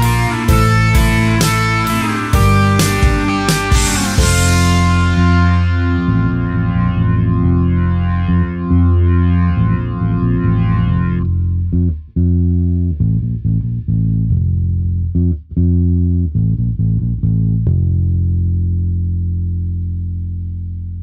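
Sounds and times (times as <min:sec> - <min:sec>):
band playing: 0:00.0 - 0:11.4
bass and guitar phrases: 0:00.0 - 0:21.0.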